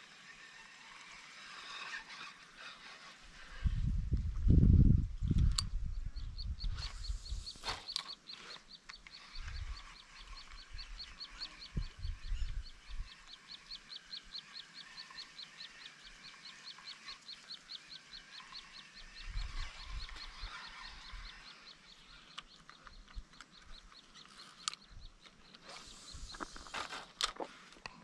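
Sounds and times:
faint scattered chirping: 0:05.2 - 0:28.0
sharp clicks: 0:06.6 - 0:09.7, 0:22.3 - 0:28.0.

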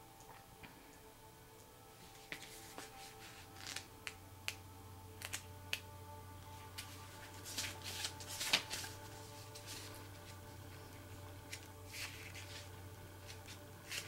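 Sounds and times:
cards rustling: 0:02.0 - 0:04.6, 0:06.5 - 0:14.0
card clicks and snaps: 0:05.2 - 0:05.9, 0:07.6 - 0:08.9.

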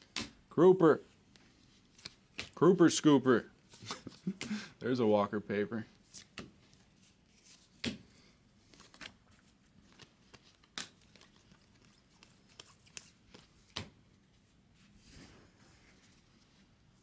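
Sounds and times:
cards snapping and clicking: 0:09.9 - 0:13.9.

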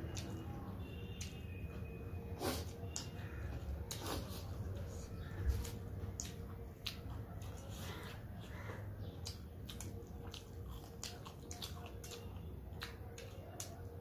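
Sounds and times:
chewing and mouth smacking: 0:00.0 - 0:14.0.

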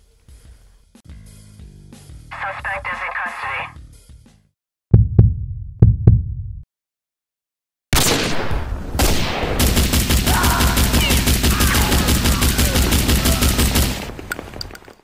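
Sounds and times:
loud gun blast: 0:07.9 - 0:14.2
rapid automatic gunfire: 0:09.1 - 0:14.2.

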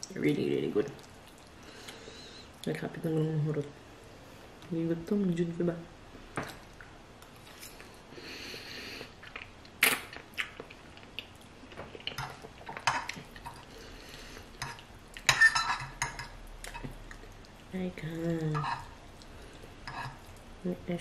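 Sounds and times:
fork clinking on ceramic plate: 0:14.6 - 0:16.3.

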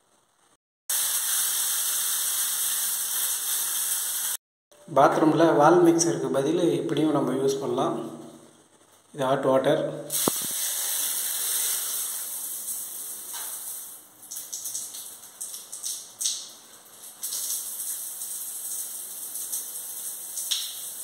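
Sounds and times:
shower spray hissing on tiles: 0:00.9 - 0:04.4, 0:10.1 - 0:21.0.

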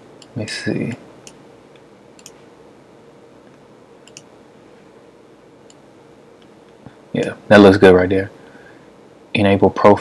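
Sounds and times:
low room hiss: 0:00.0 - 0:10.0
computer mouse clicks: 0:02.2 - 0:02.4, 0:03.5 - 0:04.3.

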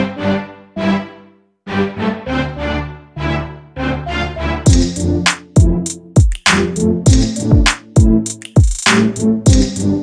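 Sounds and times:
drum beat: 0:04.7 - 0:09.9.

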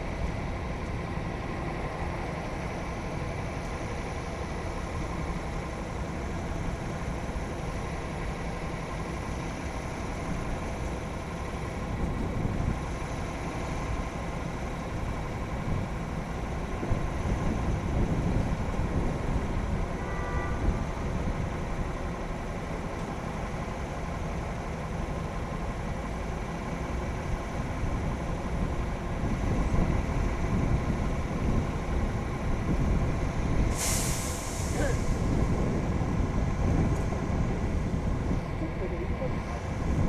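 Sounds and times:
wind buffeting microphone: 0:11.6 - 0:13.2, 0:13.9 - 0:19.9, 0:27.0 - 0:40.0.

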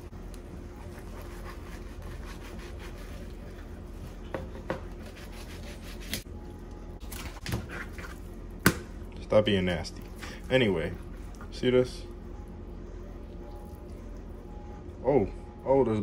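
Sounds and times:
knife scraping skin off fish: 0:04.9 - 0:06.2.

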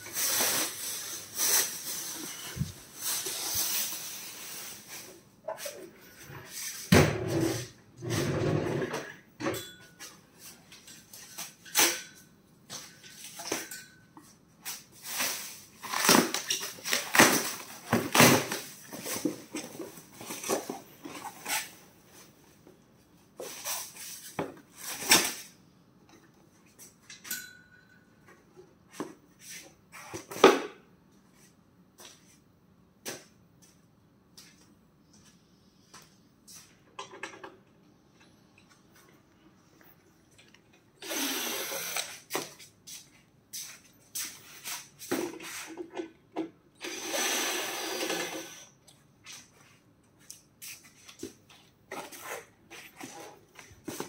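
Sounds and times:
plastic wrap rustling: 0:00.0 - 0:05.8, 0:14.9 - 0:22.4.

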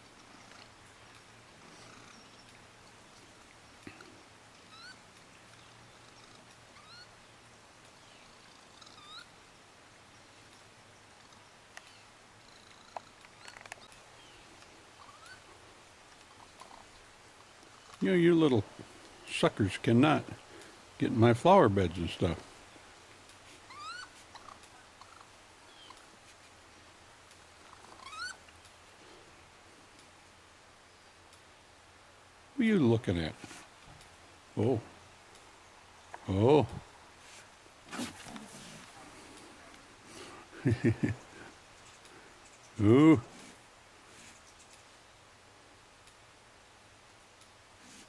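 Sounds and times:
faint chirps and ticks: 0:00.0 - 0:19.3, 0:20.2 - 0:21.3, 0:22.2 - 0:32.5, 0:33.2 - 0:37.7, 0:38.4 - 0:48.0
raccoon kit chirping: 0:04.6 - 0:05.0, 0:05.6 - 0:07.2, 0:08.2 - 0:09.3, 0:11.2 - 0:15.6, 0:23.5 - 0:26.1, 0:27.6 - 0:28.5.

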